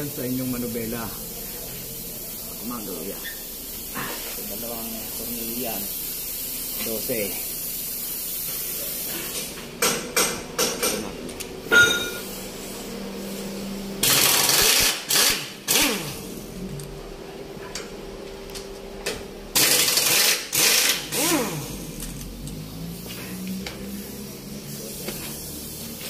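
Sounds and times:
air impact wrench hammering: 9.1s - 12.4s, 14.0s - 16.3s, 19.5s - 22.3s.

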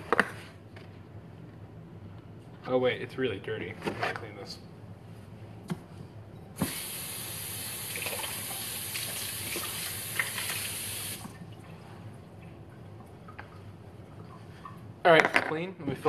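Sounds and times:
tap water running into sink: 6.6s - 11.4s.

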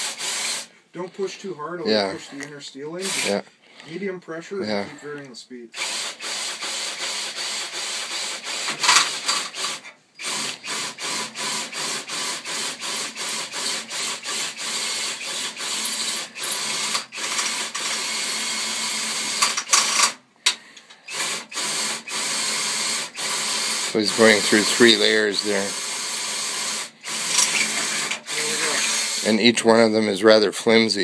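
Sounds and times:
power drill drilling through steel: 0.0s - 0.7s, 3.0s - 3.4s, 5.8s - 20.2s, 21.0s - 29.5s.

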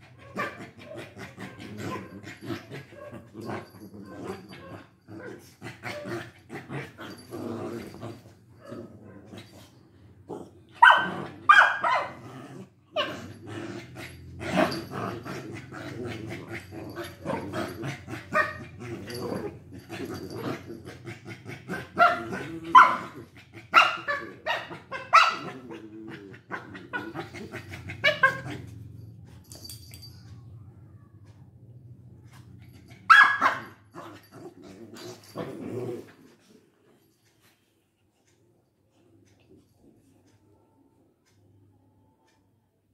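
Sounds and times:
dogs barking and yapping: 0.0s - 10.0s, 10.7s - 36.4s
dogs growling: 0.0s - 30.2s, 31.0s - 37.0s.

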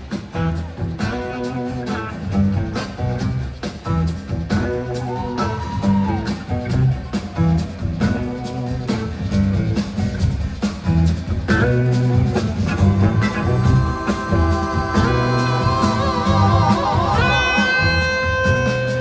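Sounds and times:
live blues-rock band playing: 0.0s - 19.0s
electric guitar lead note sliding: 13.0s - 19.0s.

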